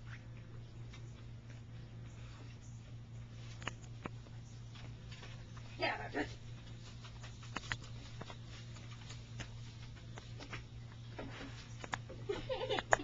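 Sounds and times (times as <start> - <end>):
steady low hum: 0.0 - 13.0
claws clicking and scratching on wood: 6.7 - 12.1.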